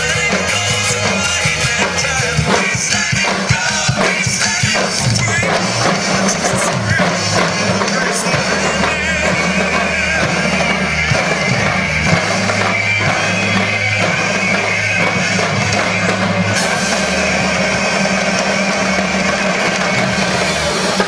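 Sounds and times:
sustained bass notes: 0.0s - 2.8s, 4.7s - 21.0s
drumline drums and cymbals: 0.0s - 21.0s.

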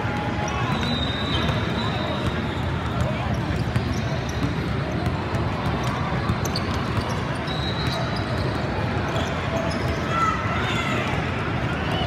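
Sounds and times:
basketball bouncing on court: 0.0s - 8.7s
game noise in a hall: 0.0s - 12.0s
shoe squeaks: 0.4s - 4.6s, 6.3s - 10.1s.

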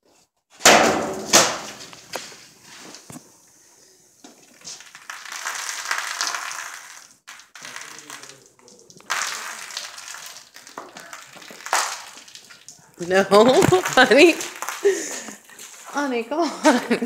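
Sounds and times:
soda pouring and splashing: 3.8s - 15.8s.

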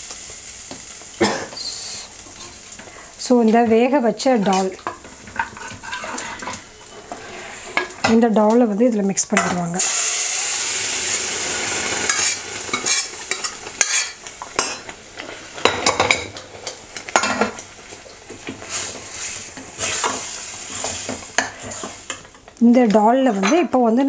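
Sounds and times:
food sizzling in hot oil: 0.0s - 24.0s
steel ladle scraping and clinking pan: 4.5s - 8.0s.

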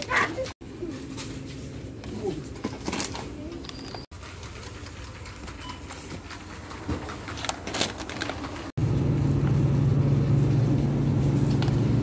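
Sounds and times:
packaging clicks: 7.2s - 8.7s
low hum: 8.8s - 12.0s.

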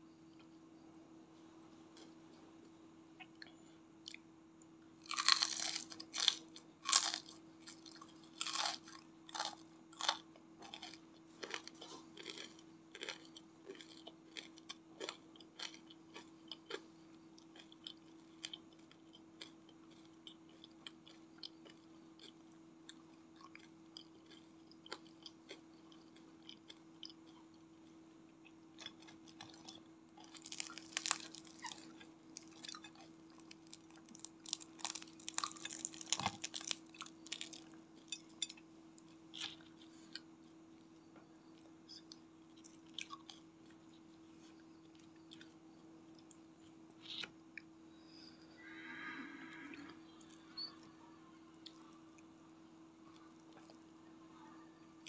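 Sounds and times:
faint steady hum: 0.0s - 55.0s
crunchy chewing of fried food: 4.9s - 48.3s, 51.5s - 54.2s
crispy fritter crackling in hands: 5.0s - 16.8s, 30.2s - 38.2s.

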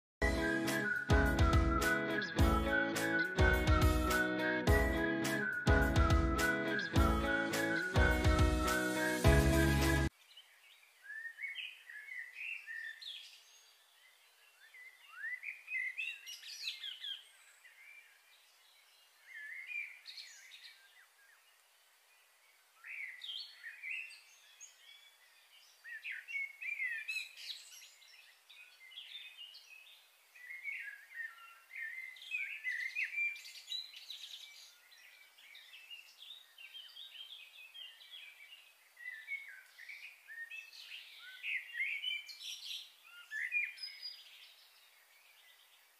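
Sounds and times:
birds chirping: 0.2s - 21.4s.

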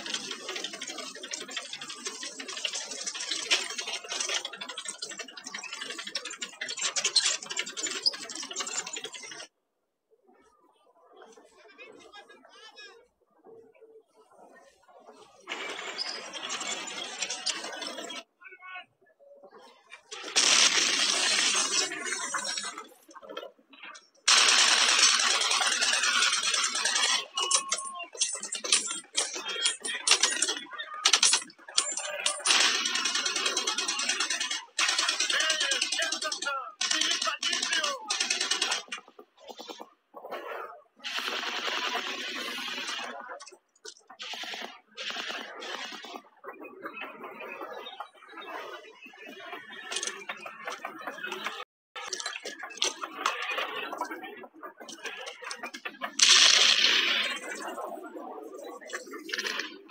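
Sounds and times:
rapid automatic gunfire: 0.0s - 9.4s, 20.1s - 22.9s, 24.3s - 39.6s, 41.0s - 43.2s, 44.1s - 46.2s, 56.1s - 58.0s
clicks and rattles: 0.0s - 9.5s, 19.9s - 39.8s, 49.8s - 57.9s.

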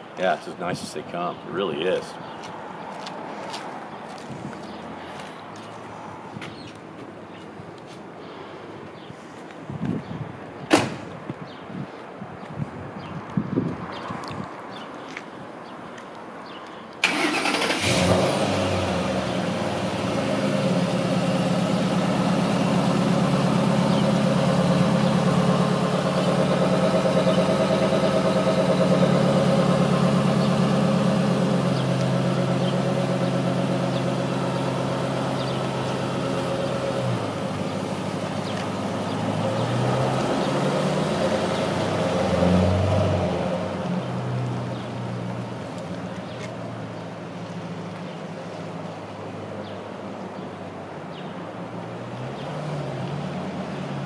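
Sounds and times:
truck engine starting and idling: 17.0s - 43.9s
truck engine revving: 17.0s - 44.4s.

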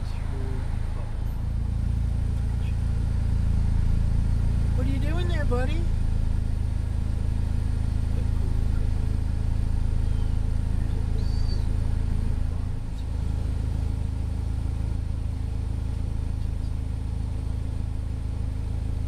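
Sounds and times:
vehicle engine rumbling: 0.0s - 19.0s
faint high chirp: 10.0s - 11.8s.

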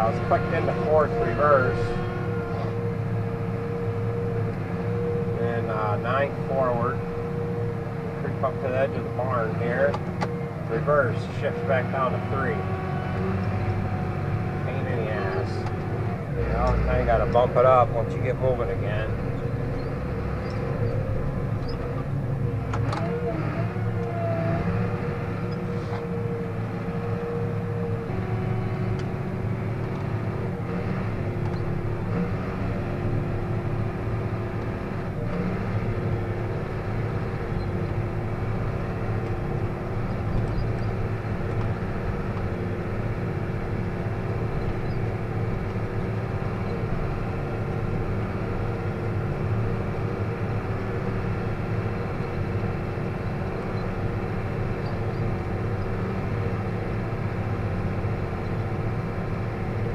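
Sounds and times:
steady whine: 0.0s - 12.6s
tractor engine drone: 0.0s - 59.9s.

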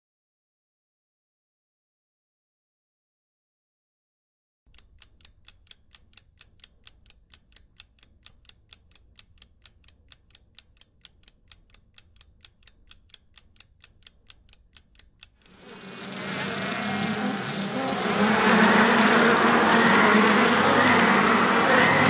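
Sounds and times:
steady ticking: 4.7s - 22.0s
loud noise: 15.5s - 22.0s.

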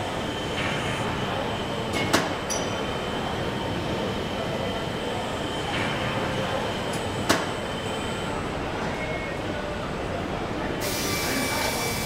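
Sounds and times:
machinery hiss and rumble: 10.8s - 12.0s.

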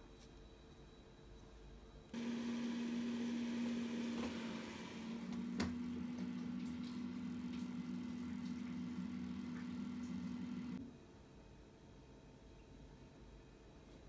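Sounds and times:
air fryer fan hum: 2.2s - 10.8s.

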